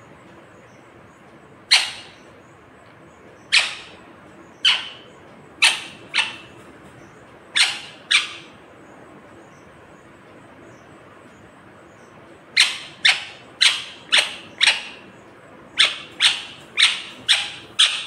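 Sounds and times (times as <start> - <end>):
parakeet squawks: 1.7 - 2.2, 3.5 - 4.0, 4.6 - 6.6, 7.6 - 8.5, 12.6 - 15.0, 15.8 - 18.0.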